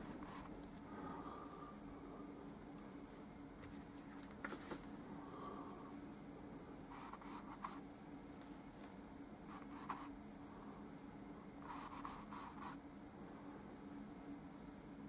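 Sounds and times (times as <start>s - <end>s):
paintbrush strokes: 0.0s - 0.6s, 3.6s - 4.9s, 6.9s - 7.8s
steady low hum: 0.0s - 15.0s.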